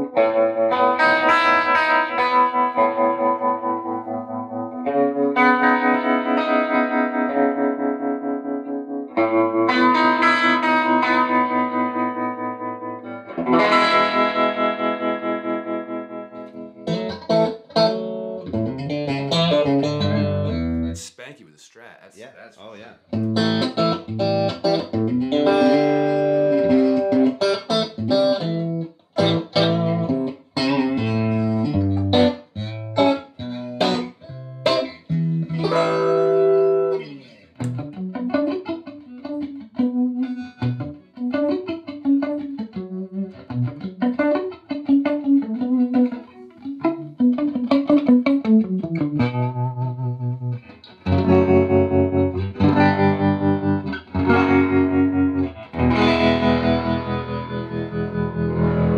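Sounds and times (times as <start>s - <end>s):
electric guitar through tube amp: 23.0s - 58.9s.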